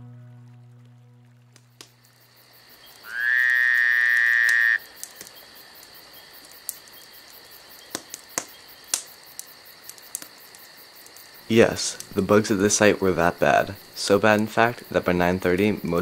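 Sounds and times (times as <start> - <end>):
loud close insect buzz: 1.6 - 8.9
night insects chorus: 1.8 - 16.0
faint clicks: 4.4 - 12.1.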